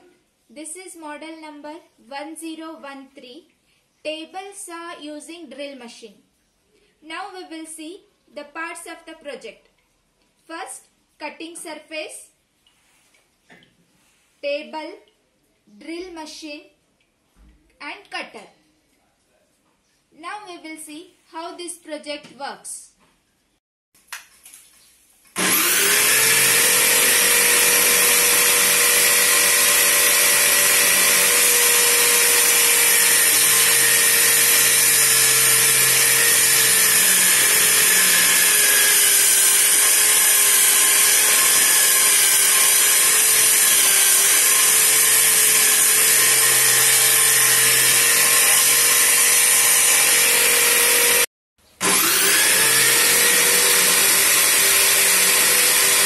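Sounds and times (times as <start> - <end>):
electric drill saw whining: 25.4 - 56.0.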